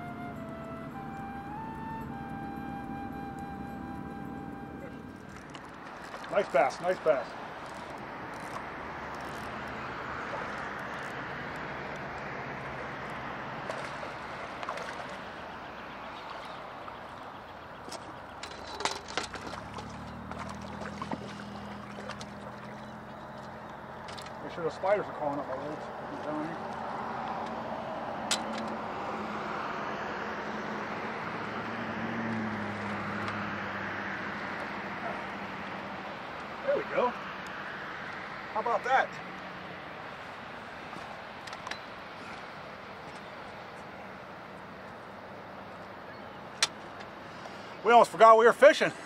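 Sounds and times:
fish splashing at water surface: 0:13.5 - 0:15.4, 0:17.9 - 0:23.5.

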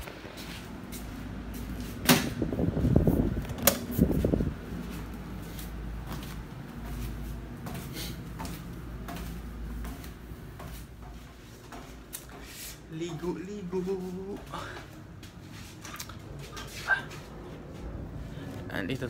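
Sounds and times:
faint footsteps: 0:00.0 - 0:18.7
low hum: 0:12.9 - 0:19.0.

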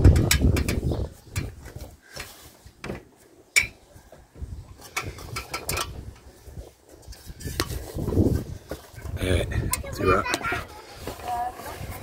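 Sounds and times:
knocks and clinks on slate roof: 0:00.0 - 0:06.2.

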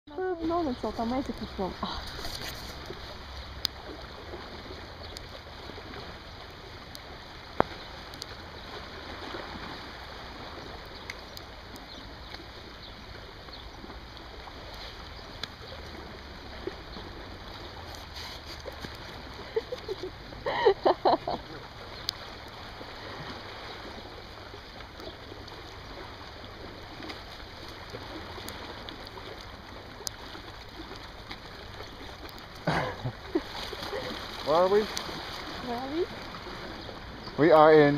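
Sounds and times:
small waves lapping on rocks: 0:00.1 - 0:37.9.

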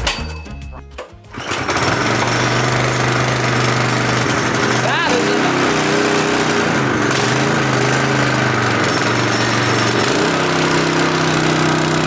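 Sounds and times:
go-kart engine running: 0:01.3 - 0:12.0.

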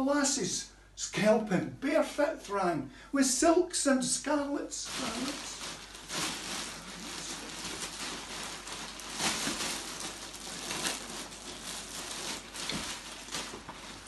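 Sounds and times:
plastic sheeting crinkling: 0:04.8 - 0:14.0.

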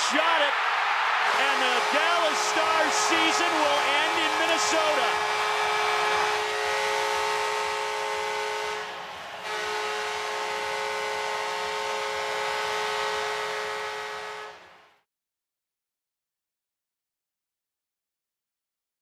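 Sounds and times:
crowd cheering: 0:00.0 - 0:14.8
goal horn blaring: 0:00.0 - 0:14.9.

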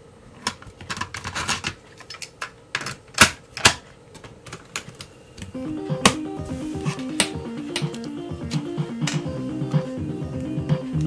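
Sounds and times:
cassette tape handling clacks: 0:07.0 - 0:09.3.

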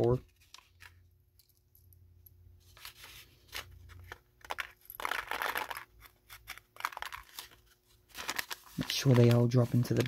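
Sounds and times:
paper envelope rustling: 0:02.7 - 0:10.0.

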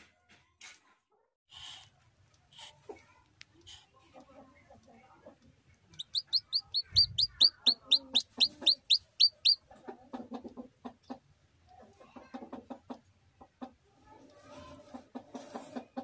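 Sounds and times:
chicken clucking: 0:03.7 - 0:13.8, 0:14.7 - 0:16.0
chick peeping: 0:04.0 - 0:11.2.

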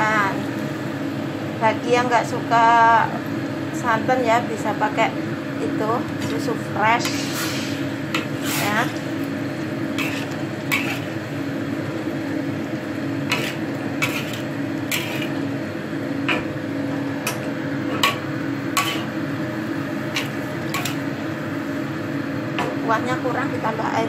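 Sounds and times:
steady hum: 0:00.0 - 0:24.0
metal spatula scraping a wok: 0:07.0 - 0:09.1, 0:09.9 - 0:11.2, 0:13.3 - 0:15.4, 0:18.8 - 0:19.2, 0:20.2 - 0:21.0.

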